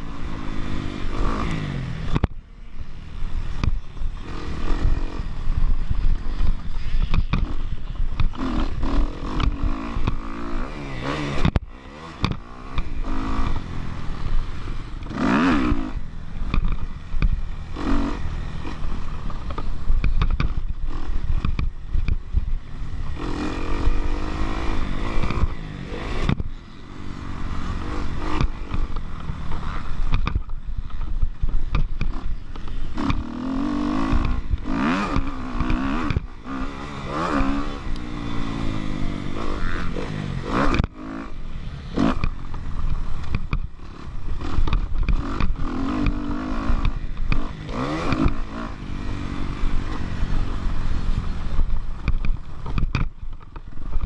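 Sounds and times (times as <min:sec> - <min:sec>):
motocross bike engine revving: 0:00.0 - 0:02.2, 0:02.8 - 0:54.0
wind rush on microphone: 0:01.5 - 0:10.2.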